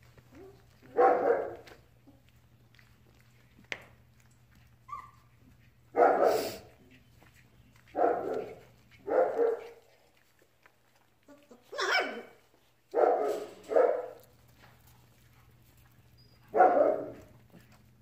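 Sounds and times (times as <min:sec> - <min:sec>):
puppies barking: 0:00.2 - 0:01.8, 0:04.8 - 0:06.8, 0:07.7 - 0:10.0, 0:11.3 - 0:14.3, 0:16.1 - 0:17.8
puppy yip: 0:04.9 - 0:05.3, 0:11.4 - 0:12.4.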